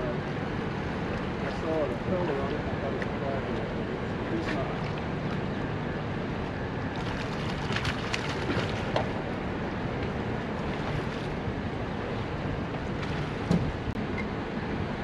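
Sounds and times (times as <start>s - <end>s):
water splashes and knocks: 7.0s - 9.2s, 10.0s - 11.4s, 12.1s - 14.0s.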